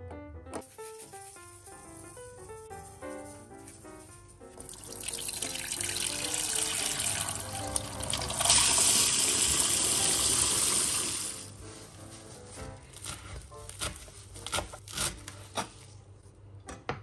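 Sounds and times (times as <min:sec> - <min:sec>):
tap water pouring into saucepan: 0:04.7 - 0:11.4.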